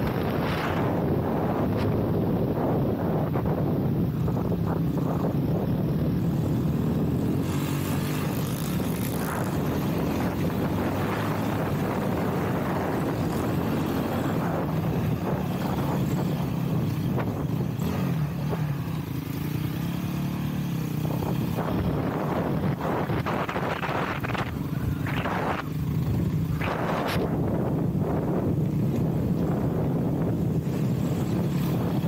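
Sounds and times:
dirt bike engine revving: 4.7 - 28.1.

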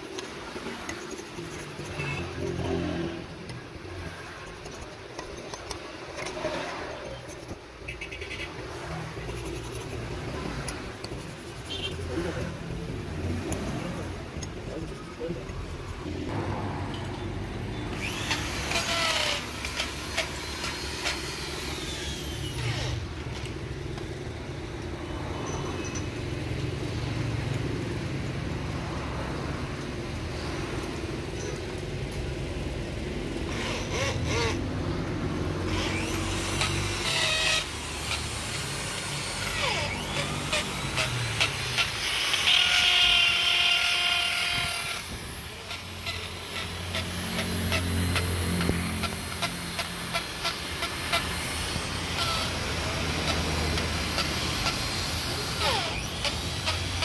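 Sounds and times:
metal clinking and scraping: 0.0 - 12.4, 25.4 - 26.3
workshop machine hum: 0.0 - 57.0.

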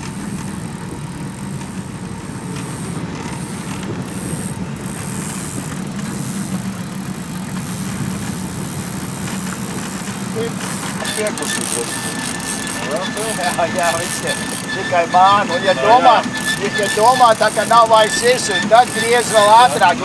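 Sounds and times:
wind and water hiss: 0.0 - 12.6
boat motor droning: 0.0 - 20.0.

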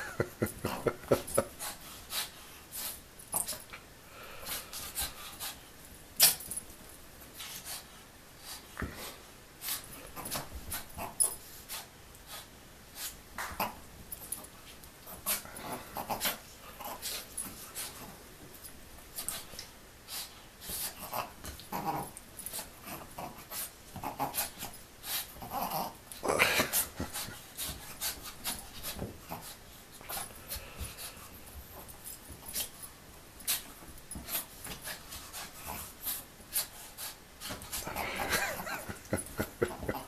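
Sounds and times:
small dog growling: 21.0 - 22.2, 22.8 - 24.7, 25.4 - 26.8.

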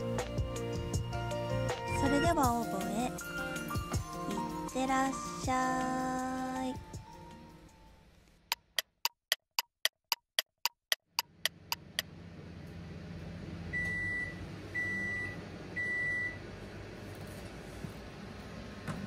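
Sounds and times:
oven timer ticking: 8.5 - 12.0
oven low hum: 12.1 - 19.0
oven beeps: 13.7 - 16.4.

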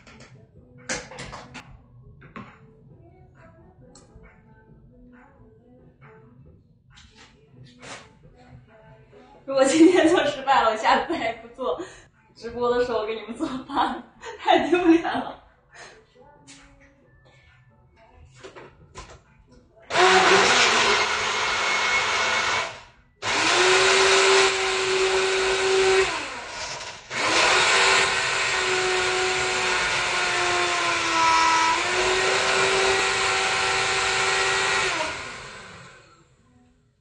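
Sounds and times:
blender motor whining: 19.9 - 36.2.

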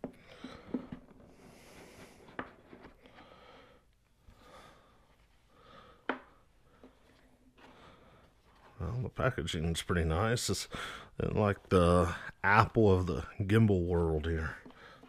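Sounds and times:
soft box rustling: 0.0 - 3.4, 6.3 - 10.5.

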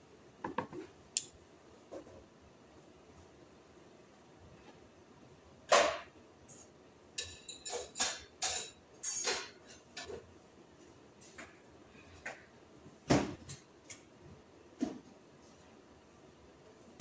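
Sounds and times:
spoon and dishes clinking: 6.5 - 10.2.

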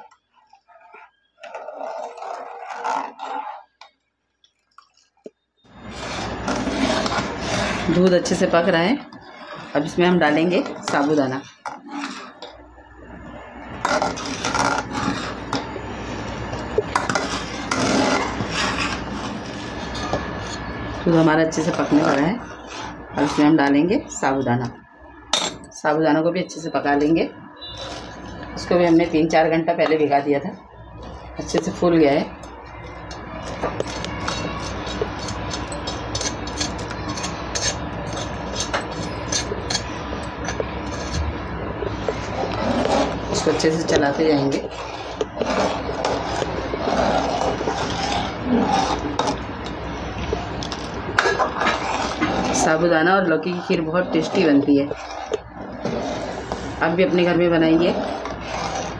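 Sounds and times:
metal spoon scraping a pot: 0.7 - 3.8, 5.8 - 12.6, 13.2 - 24.4, 31.0 - 58.9
low steady hum: 12.6 - 58.9.

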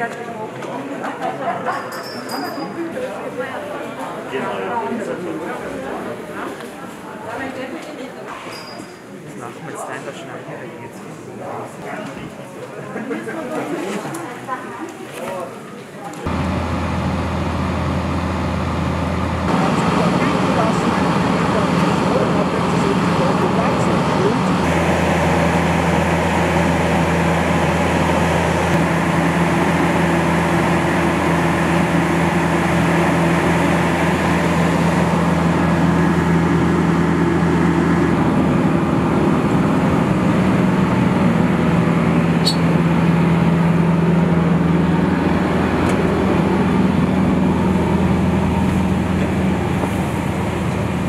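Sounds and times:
machinery droning hum: 16.3 - 51.0.

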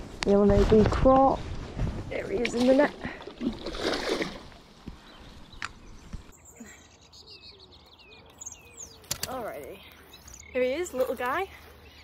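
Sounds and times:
birds chirping: 2.1 - 12.0
sharp click: 9.0 - 9.4.

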